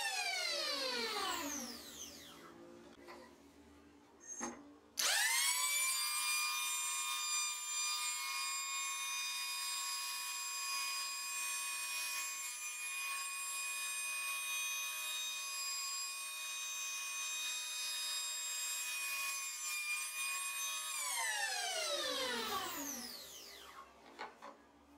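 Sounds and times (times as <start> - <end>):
electric planer whining: 0.0 - 2.5, 5.0 - 10.2, 20.5 - 23.9.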